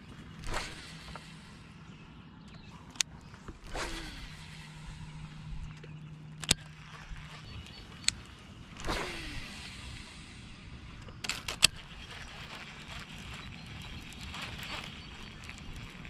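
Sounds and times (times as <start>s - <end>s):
fishing reel spool whirring: 0.0s - 16.0s
fishing reel clicks: 2.9s - 10.0s.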